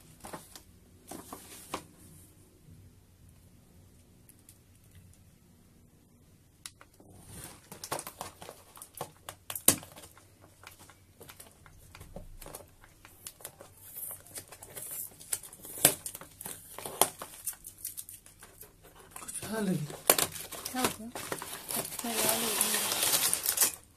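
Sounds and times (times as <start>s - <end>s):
cardboard box crinkling and scraping: 18.8s - 23.8s.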